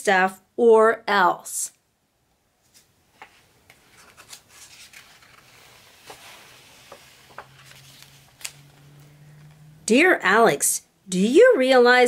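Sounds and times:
book pages rustling: 0:02.6 - 0:09.7.

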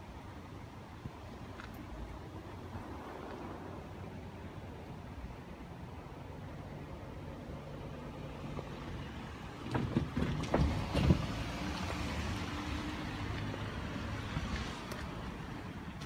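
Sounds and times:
sharp knocks and thumps: 0:09.6 - 0:12.0
vehicle passing: 0:10.3 - 0:16.0.

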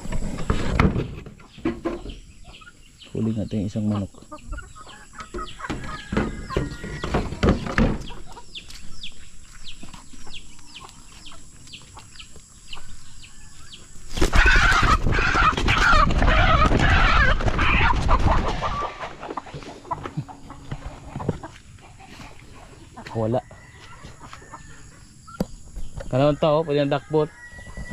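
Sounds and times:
wings flapping: 0:14.1 - 0:19.4
chicken squawking in alarm: 0:14.2 - 0:19.3.

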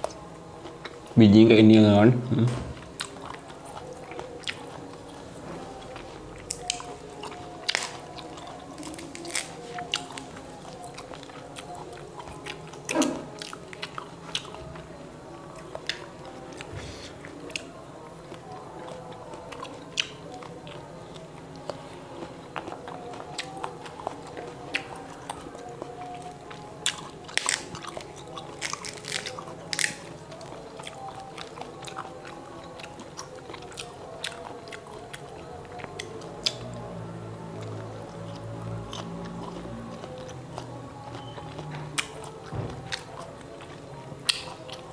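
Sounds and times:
chewing and mouth sounds: 0:00.0 - 0:01.2, 0:02.8 - 0:44.9
fruit shells cracking: 0:27.0 - 0:30.1.

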